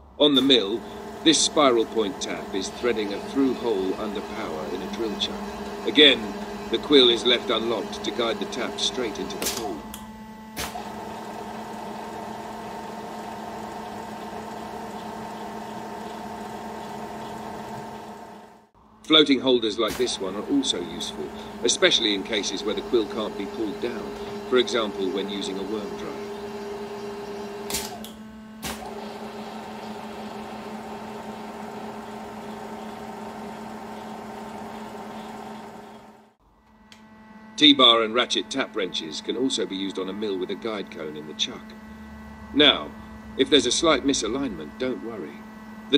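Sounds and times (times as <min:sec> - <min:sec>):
milling machine hum: 0:00.0 - 0:18.8, 0:19.5 - 0:45.9
high steady tone: 0:00.6 - 0:10.5, 0:20.1 - 0:27.6, 0:37.4 - 0:45.9.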